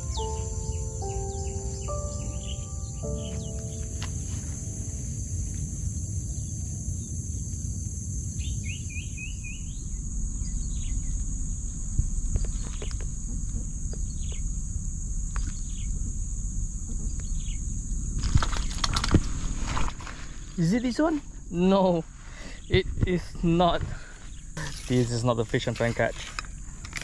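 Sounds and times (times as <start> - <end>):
bird chirping: 0.0 - 7.1, 8.4 - 11.1
low rumble: 0.0 - 12.4
high-pitched insect drone: 0.0 - 19.1.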